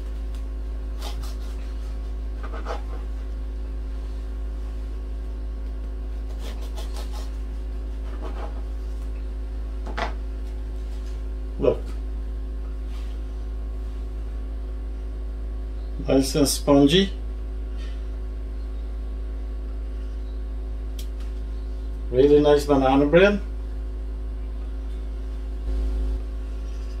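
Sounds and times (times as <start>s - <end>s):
steady low hum: 0.0s - 27.0s
bread knife sawing through bread: 0.9s - 3.1s, 6.1s - 8.7s.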